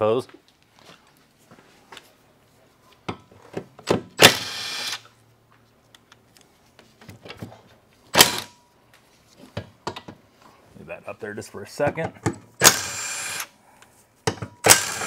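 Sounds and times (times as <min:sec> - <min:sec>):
impact wrench running: 0:04.2 - 0:05.1, 0:08.2 - 0:08.6, 0:12.6 - 0:13.5, 0:14.6 - 0:15.0.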